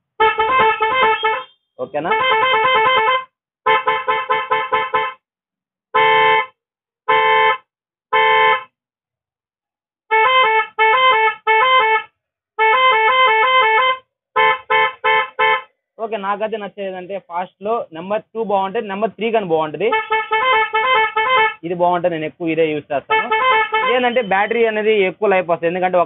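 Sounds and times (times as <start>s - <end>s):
electric horn blasts: 0.2s - 5.2s, 6.0s - 6.5s, 7.1s - 8.7s, 10.1s - 15.7s, 19.9s - 21.6s, 23.1s - 24.3s
electric horn beeps: 0.3s - 5.2s, 6.0s - 6.5s, 7.1s - 8.7s, 23.1s - 24.4s
two-tone warbling horn: 23.1s - 24.3s.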